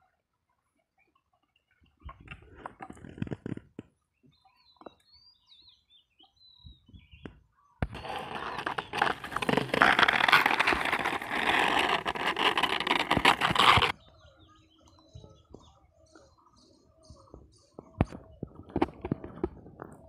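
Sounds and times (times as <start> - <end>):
rustling and crackling at microphone: 1.7 - 5.1, 6.6 - 14.0, 14.8 - 20.0
faint high bird chirps: 4.2 - 9.4, 13.9 - 18.6.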